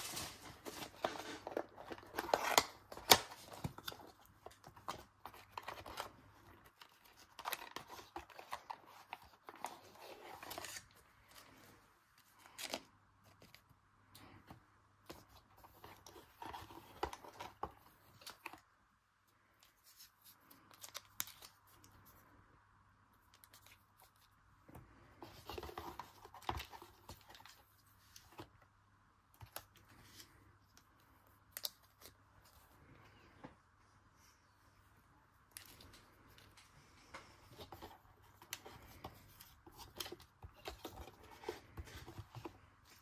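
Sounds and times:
rustling of packaging: 0.0s - 13.7s.

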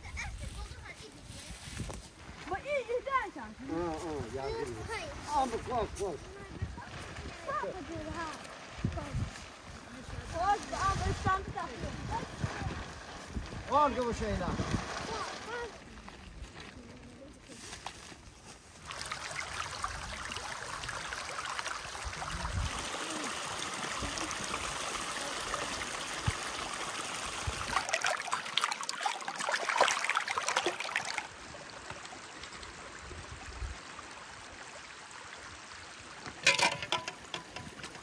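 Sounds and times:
stream running over rocks: 0.0s - 38.0s
hands splashing in water: 27.7s - 31.3s.

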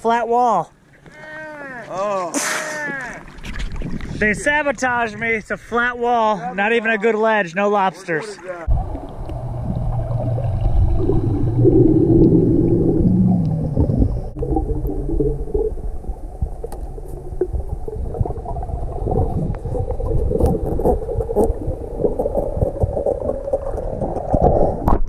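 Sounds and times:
crackles and clicks: 8.6s - 25.0s
underwater rumble of moving water: 8.6s - 25.0s
low steady hum: 8.7s - 24.0s.

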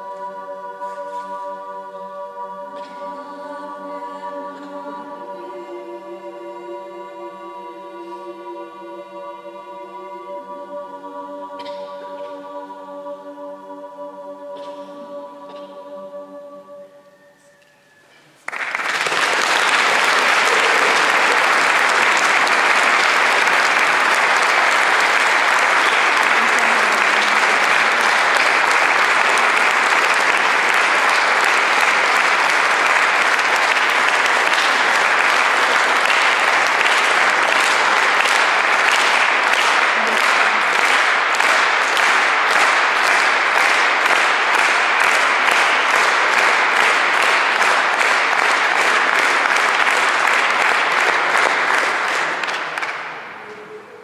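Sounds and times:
audience applauding: 18.4s - 53.6s.

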